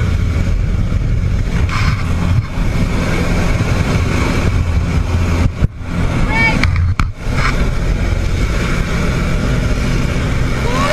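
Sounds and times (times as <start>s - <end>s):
aircraft engine drone: 0.0s - 10.9s
rushing wind: 0.0s - 10.9s.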